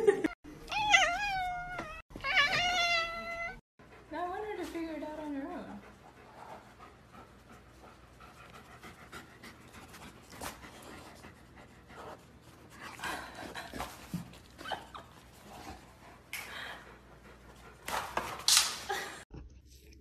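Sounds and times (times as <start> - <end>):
dog panting: 3.8 - 14.6, 15.2 - 18.2.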